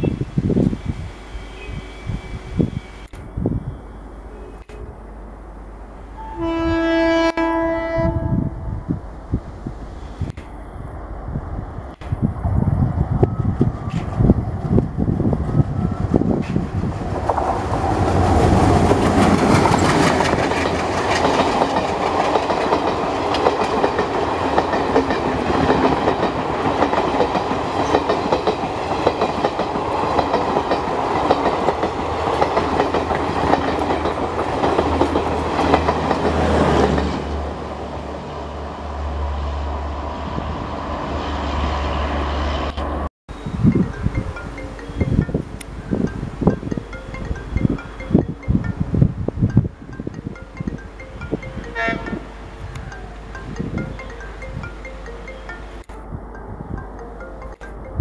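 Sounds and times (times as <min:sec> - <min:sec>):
train wheels clacking on rail joints: 0:16.4 - 0:37.2.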